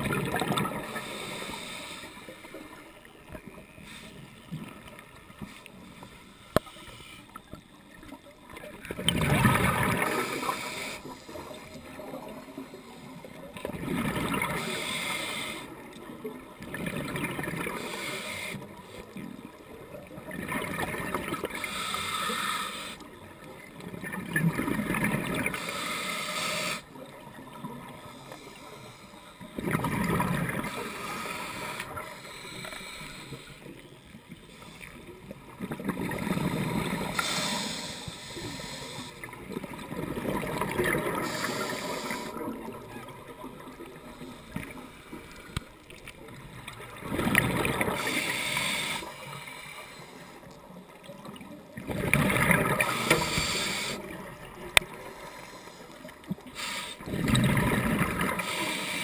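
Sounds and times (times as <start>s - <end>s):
exhaled bubbles rushing: 0.0s - 1.0s, 8.8s - 10.3s, 13.6s - 14.6s, 29.6s - 30.7s, 39.5s - 41.4s, 46.9s - 48.1s, 51.8s - 53.3s, 57.1s - 58.4s
diver breathing through regulator: 0.6s - 2.8s, 9.9s - 11.9s, 14.3s - 15.9s, 17.6s - 19.2s, 21.4s - 23.2s, 25.4s - 27.0s, 27.9s - 29.7s, 30.5s - 35.2s, 36.3s - 39.5s, 40.9s - 42.8s, 43.9s - 45.8s, 47.8s - 50.5s, 52.4s - 59.0s.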